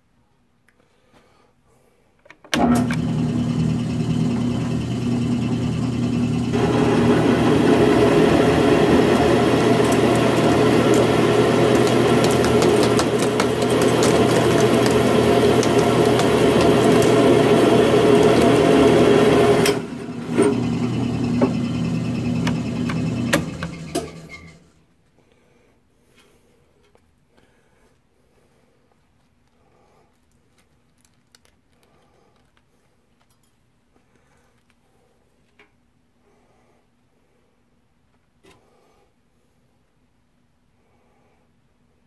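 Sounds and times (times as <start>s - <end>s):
cutter grinding into steel: 2.6s - 24.7s
drill press motor humming: 2.6s - 24.7s.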